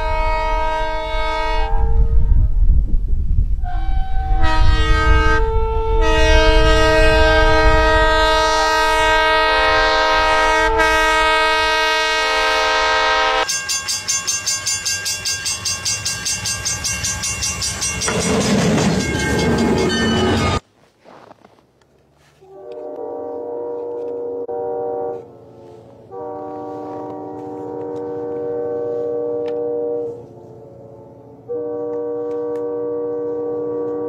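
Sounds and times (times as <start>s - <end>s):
train air horn blasts: 0.0s - 2.6s, 3.6s - 13.6s, 22.3s - 34.0s
train clattering by: 12.7s - 20.6s.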